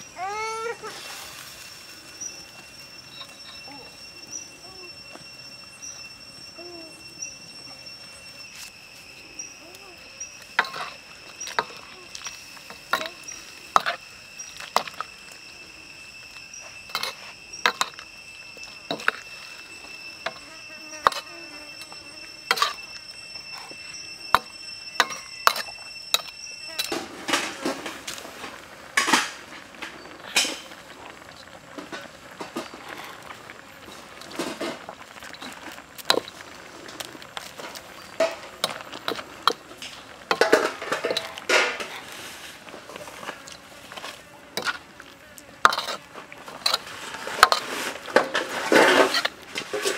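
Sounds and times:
steady high-pitched tone: 0.0s - 49.9s
metal ladle scraping a wok: 10.4s - 15.4s, 16.2s - 45.0s, 45.6s - 49.9s.

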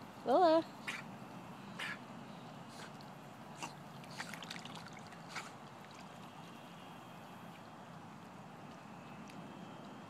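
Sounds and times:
water sloshing around dog: 2.7s - 6.6s
short splashes: 2.8s - 6.4s.

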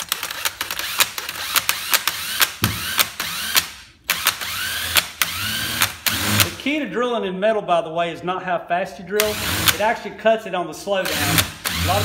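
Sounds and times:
drill hole saw ratcheting on metal: 0.0s - 6.6s, 9.2s - 9.8s, 11.0s - 12.0s.

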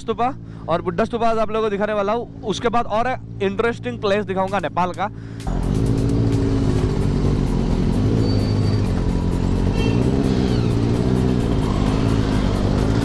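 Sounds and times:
motorcycle engine running: 5.4s - 13.0s.

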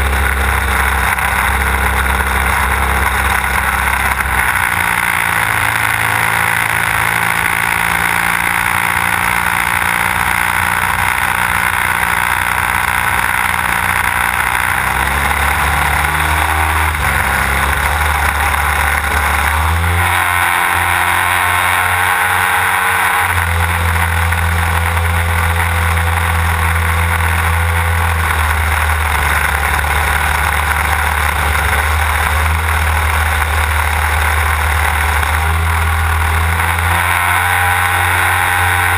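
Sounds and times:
model plane engine and propeller: 0.0s - 38.9s.

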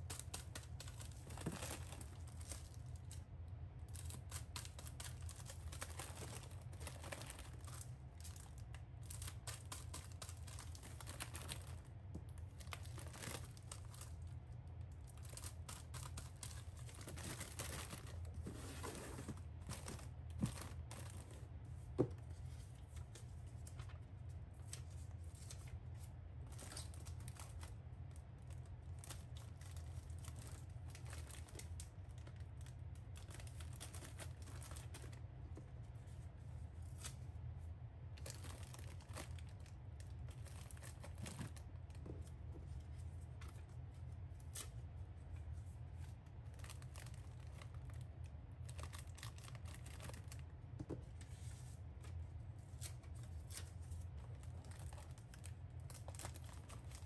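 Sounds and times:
steady low hum: 0.0s - 57.0s
plastic bags rustling: 0.1s - 3.2s, 3.8s - 14.3s, 15.0s - 21.6s, 29.0s - 35.2s, 38.2s - 43.6s, 46.5s - 48.0s, 48.6s - 50.4s, 52.9s - 57.0s.

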